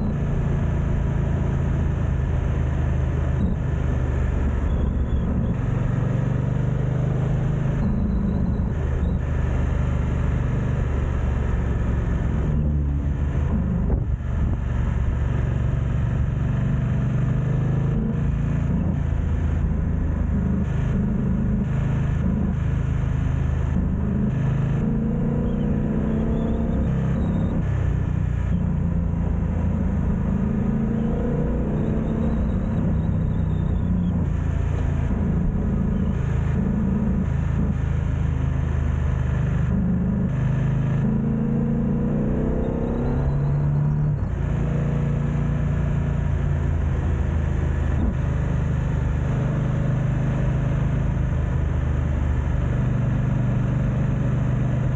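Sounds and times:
motorcycle engine running: 0.0s - 42.0s
wind noise on microphone: 13.6s - 15.2s.

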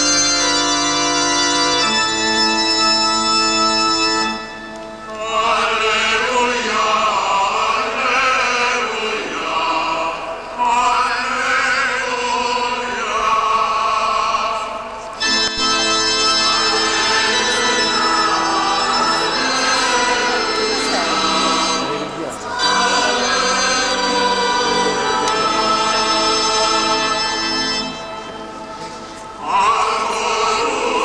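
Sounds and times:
held organ chord: 0.0s - 6.3s, 15.2s - 31.0s
organ playing: 0.0s - 8.0s, 15.2s - 31.0s
person singing with vibrato: 5.1s - 31.0s.

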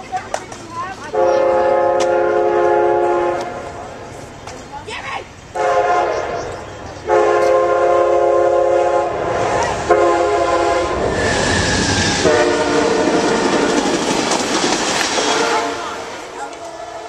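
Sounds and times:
train rumbling and clattering past: 0.0s - 17.0s
train horn blasts: 1.1s - 3.8s, 5.6s - 6.5s, 7.1s - 11.1s, 12.0s - 13.9s, 15.2s - 17.0s.

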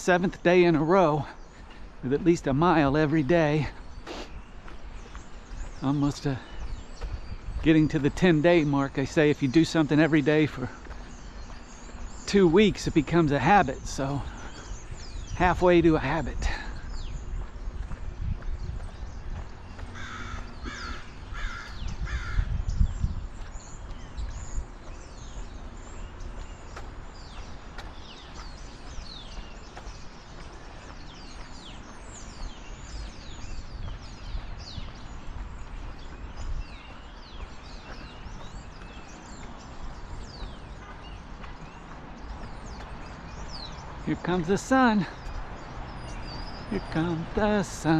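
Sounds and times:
bird harsh calls: 0.0s - 47.9s
small birds chirping: 0.0s - 47.9s.

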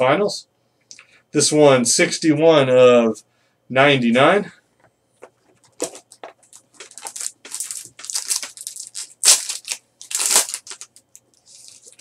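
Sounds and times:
wrapper crinkling and tearing: 5.7s - 12.0s.

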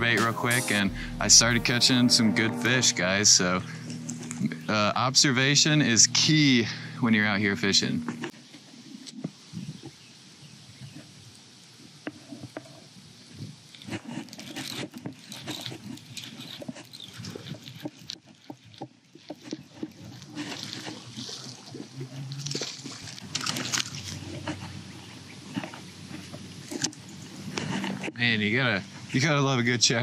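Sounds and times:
handling noise: 0.0s - 5.5s
rustling and clicking: 12.0s - 28.2s
fish splashing: 15.9s - 28.2s.

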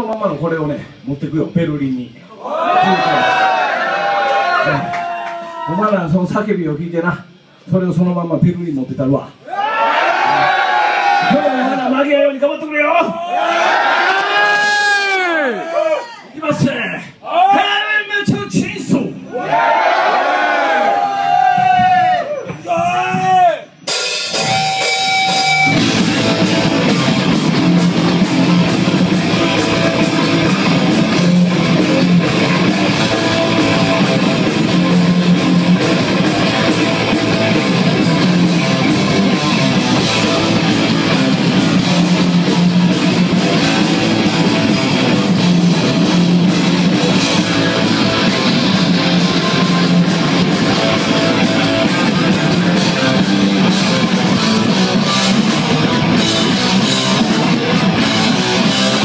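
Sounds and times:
drum kit: 21.0s - 59.0s
distorted electric guitars: 23.1s - 59.0s
bass guitar: 23.8s - 59.0s.

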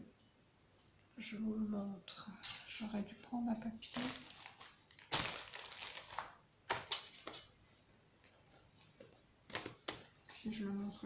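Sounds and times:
plastic packaging crinkling: 3.8s - 6.8s.

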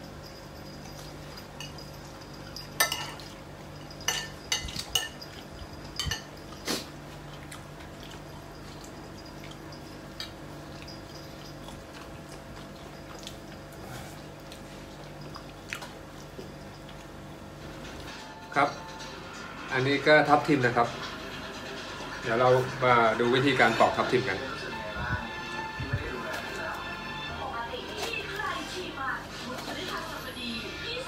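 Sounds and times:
cutlery clinking on ceramic plates: 0.9s - 6.8s.

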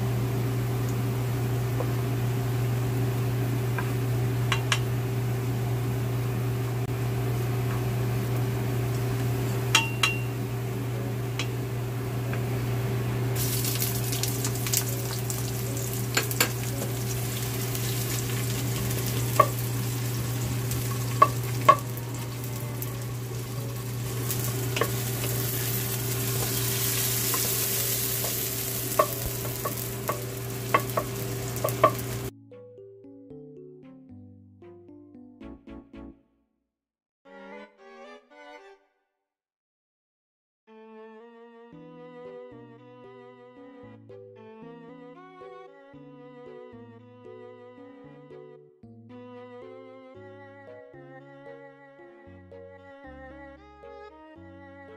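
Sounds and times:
kitchen fan humming: 0.0s - 32.3s
garlic and onion sizzling in oil: 7.0s - 32.3s
wooden spatula knocking on pot: 19.4s - 19.6s, 21.2s - 21.9s, 27.3s - 32.3s.

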